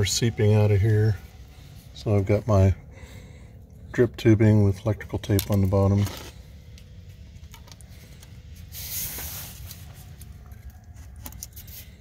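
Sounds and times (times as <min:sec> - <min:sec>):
hiss of air and spraying water: 0:08.7 - 0:09.8.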